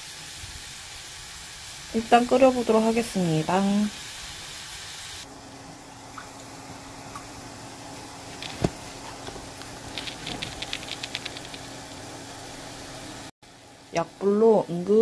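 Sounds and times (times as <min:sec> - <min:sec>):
soup hissing and bubbling: 0:00.0 - 0:13.3
small ticks: 0:09.9 - 0:11.7.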